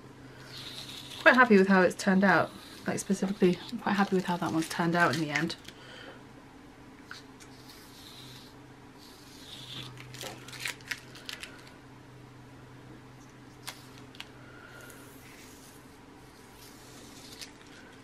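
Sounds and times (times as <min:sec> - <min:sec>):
tape peeling off paper: 0:09.6 - 0:11.7.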